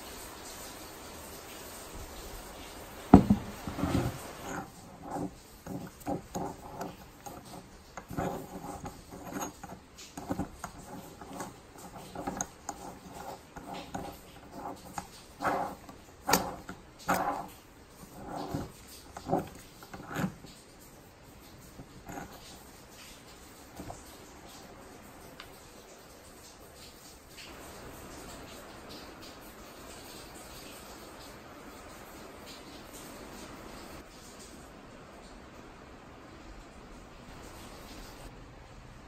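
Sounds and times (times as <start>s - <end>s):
screw jack knocking on bench: 3.1s - 7.4s
metal clinks scrapes and squeaks: 3.5s - 22.8s.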